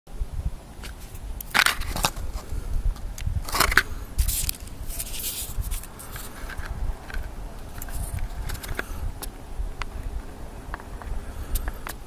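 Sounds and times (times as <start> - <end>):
cardboard box rustling and scraping: 0.8 - 2.5, 3.4 - 8.9
low rumble: 1.3 - 11.9.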